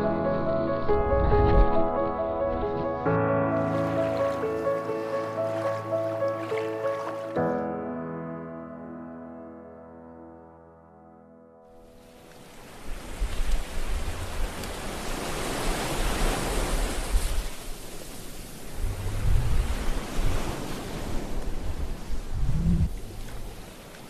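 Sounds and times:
ocean surf: 0.0 - 7.5, 11.8 - 24.0
wind buffeting microphone: 0.9 - 2.7, 12.9 - 23.8.

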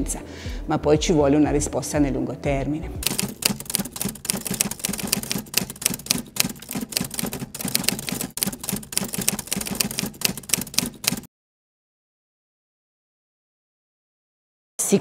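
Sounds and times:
typewriter key clacks: 3.0 - 11.3.

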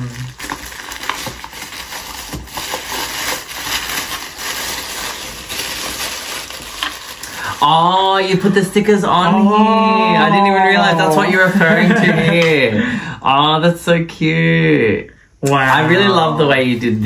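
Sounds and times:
tissue paper crinkling: 0.0 - 9.5.

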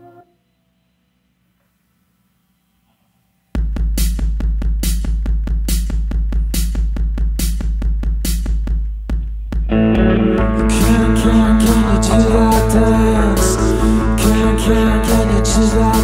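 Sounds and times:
drum machine beat: 3.6 - 16.0.

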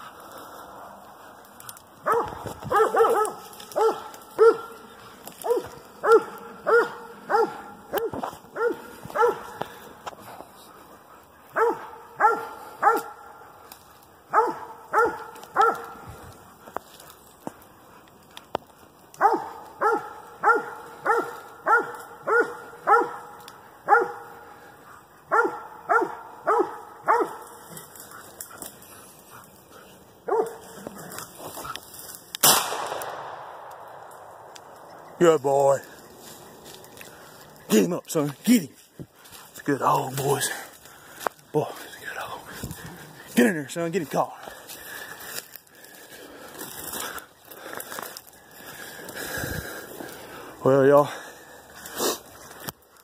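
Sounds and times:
dog barking: 2.0 - 4.8, 5.4 - 9.8, 11.5 - 13.6, 14.3 - 16.1, 19.2 - 24.5, 25.3 - 27.6, 30.2 - 30.8.

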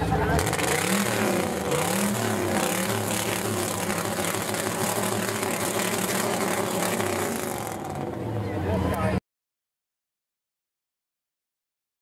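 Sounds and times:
car engine revving hard: 0.2 - 8.2.

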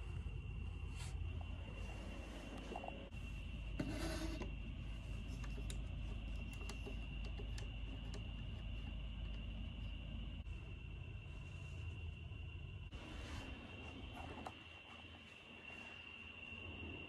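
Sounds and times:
faint high whine: 0.0 - 17.0
low hum: 0.0 - 17.0
hand rubbing wooden lamp: 1.8 - 10.4
light clicks and taps: 5.2 - 10.0.

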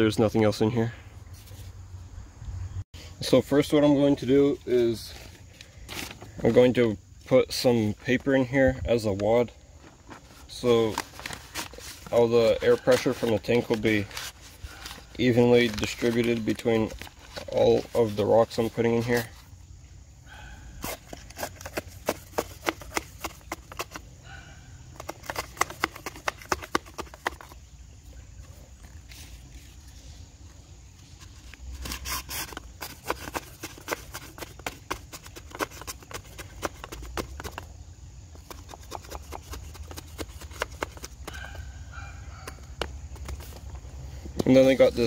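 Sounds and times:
paper crinkling: 10.1 - 19.3.

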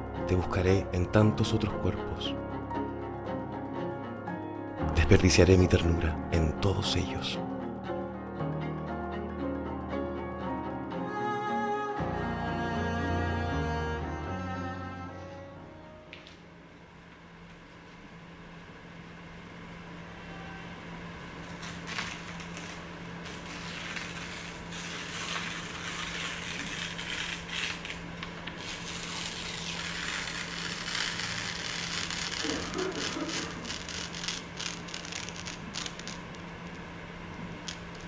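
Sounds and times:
paper tearing: 21.4 - 36.5.

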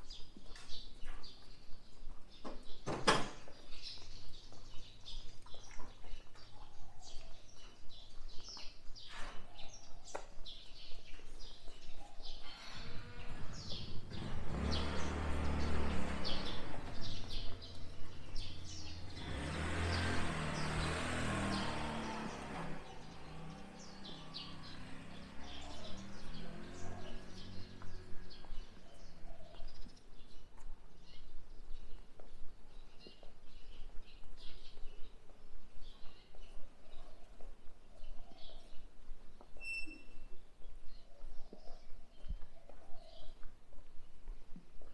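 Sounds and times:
small birds chirping: 0.0 - 44.9
passing traffic rumble: 12.5 - 30.5.

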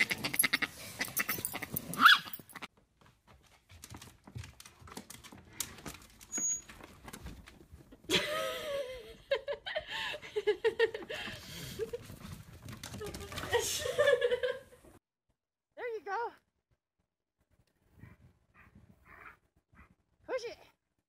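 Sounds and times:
dog yelping and whining: 1.0 - 2.6.

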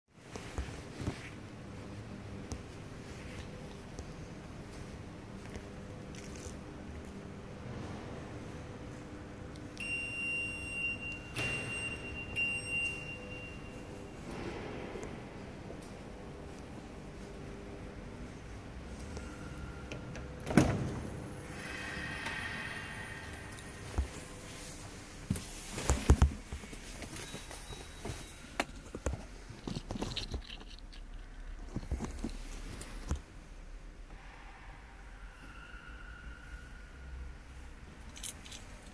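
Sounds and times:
faint low hum: 0.2 - 38.9
high electronic warning tone: 9.8 - 14.2.

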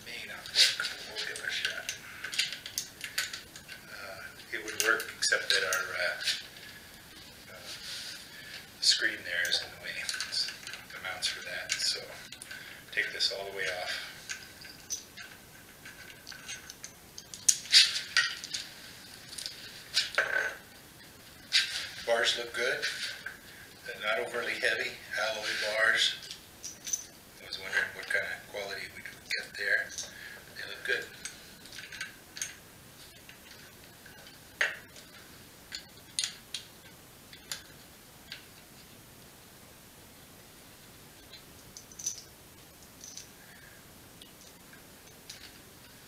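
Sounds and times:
metal bike parts clinking: 13.0 - 18.7, 25.4 - 27.2, 41.8 - 42.3.

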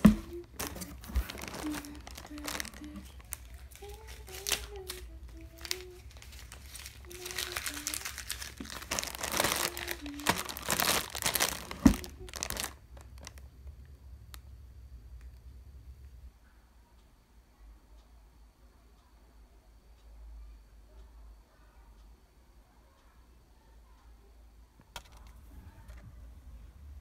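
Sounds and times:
plastic wrappers crinkling: 0.0 - 13.4.

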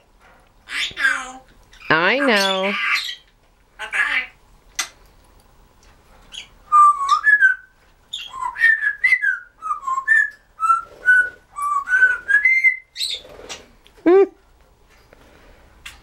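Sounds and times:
parrot whistling: 6.4 - 13.0.

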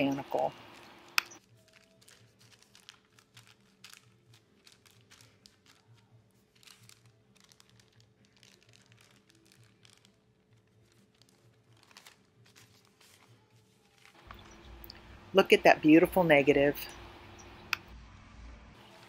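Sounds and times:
wax paper rustling and crinkling: 0.3 - 14.6.

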